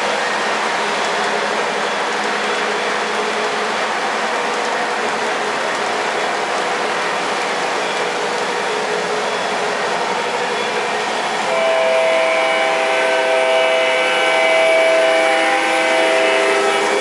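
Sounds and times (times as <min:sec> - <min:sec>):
model trains rumbling on track: 0:00.0 - 0:17.0
model train horn chord: 0:11.4 - 0:17.0.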